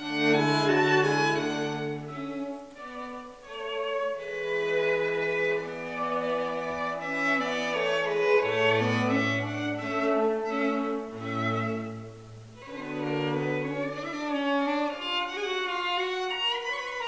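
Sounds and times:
violin melody: 0.0 - 17.0.

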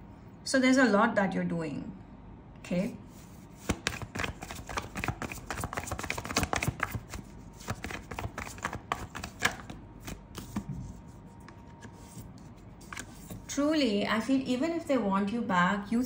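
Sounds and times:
cards being shuffled: 3.2 - 13.5
quick card flicks and taps: 3.6 - 10.8.

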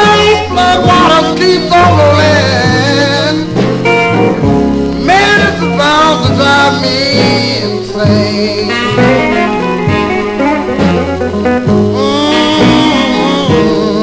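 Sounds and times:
bending sliding guitar notes: 0.0 - 14.0
steady bass: 0.0 - 14.0.

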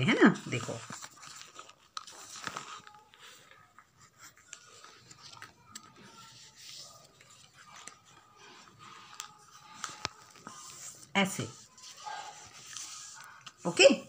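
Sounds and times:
paper rustling as it is folded: 0.0 - 14.0.

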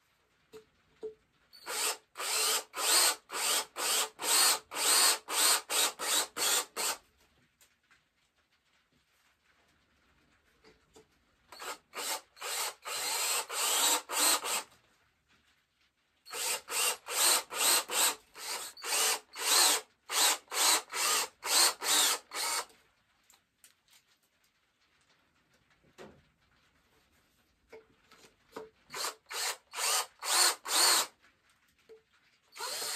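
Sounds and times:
cordless drill in short pulses: 16.3 - 22.7, 28.9 - 31.1, 32.6 - 32.9.

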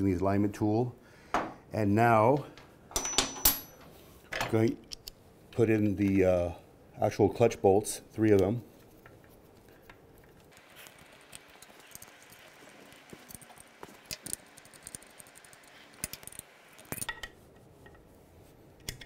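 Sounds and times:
metallic clicks of bolts: 13.3 - 17.4.

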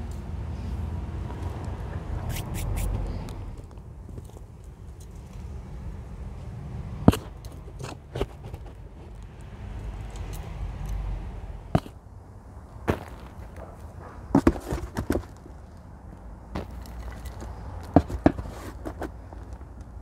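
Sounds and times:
hand scoop scraping in plastic tub: 18.0 - 19.2.

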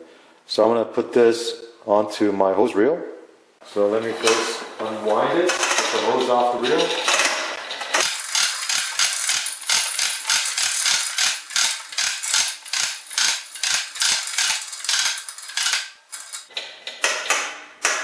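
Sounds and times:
hose reel ratchet clicking: 5.5 - 16.5.

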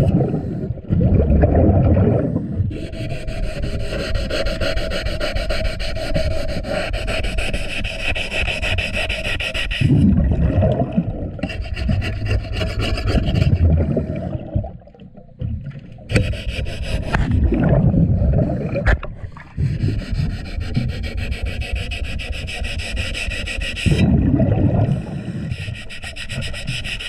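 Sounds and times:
bubbling rumble of exhaust bubbles: 0.0 - 2.5, 9.8 - 11.4, 17.3 - 19.1, 24.0 - 25.1
underwater scraping on propeller: 1.8 - 14.6, 16.1 - 27.0.

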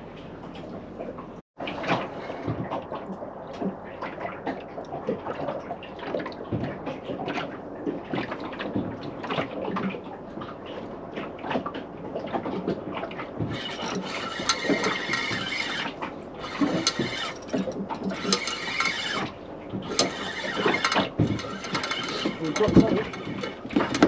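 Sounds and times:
fishing reel gears whirring: 13.4 - 24.0
small knocks: 13.4 - 24.0.

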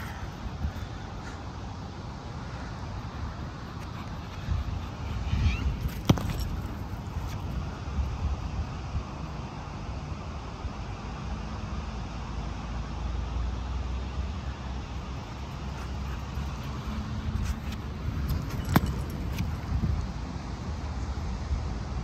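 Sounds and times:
low rumble of road traffic: 0.0 - 22.0
wind on microphone: 3.3 - 9.3.

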